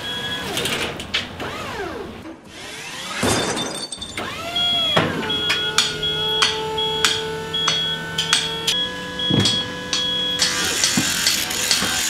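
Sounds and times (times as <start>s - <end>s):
power tool motor: 4.1s - 12.0s
high beep: 4.6s - 10.5s
sharp metallic clacks: 5.3s - 8.8s, 9.4s - 12.0s.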